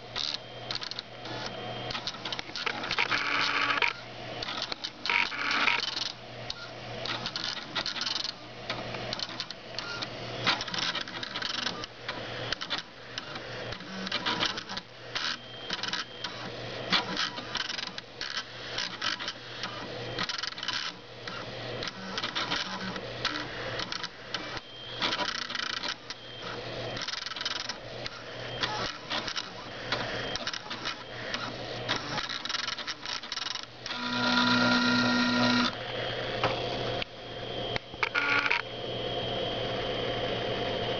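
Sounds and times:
stepper motors buzzing and clicking: 0.1s - 37.1s, 37.7s - 38.7s
motor whine: 33.8s - 40.9s.

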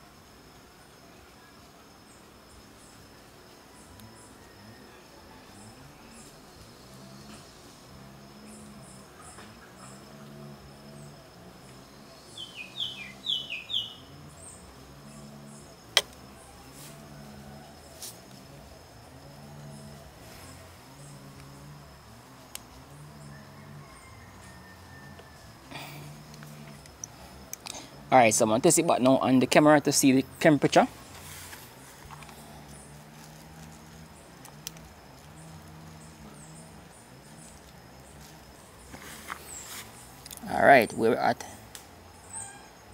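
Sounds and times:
faint insect chirping: 0.0s - 42.9s
bird chirping: 10.9s - 16.6s, 42.1s - 42.9s
low wavering hum: 30.2s - 40.4s.

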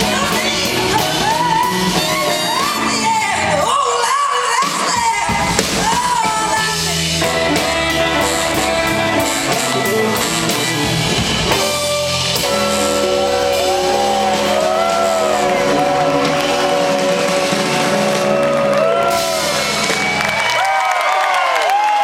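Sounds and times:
drums and cymbals: 0.0s - 3.8s, 4.4s - 20.7s
bass guitar: 0.0s - 21.0s
electric guitars: 5.4s - 20.7s
bending lead guitar line: 5.8s - 20.3s.

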